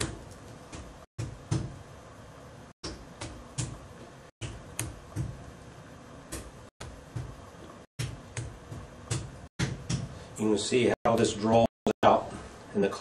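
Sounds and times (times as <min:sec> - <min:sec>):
hammer knocking on clay: 0:08.0 - 0:10.2.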